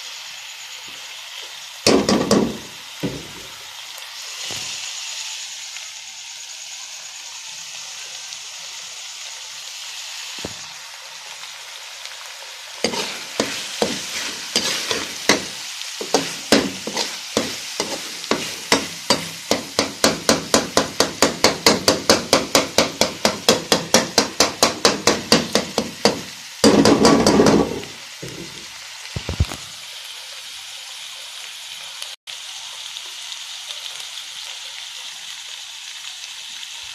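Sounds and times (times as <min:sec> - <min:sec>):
meat sizzling in oil: 0:00.0 - 0:36.9
spoon scraping and knocking pot: 0:12.8 - 0:28.6.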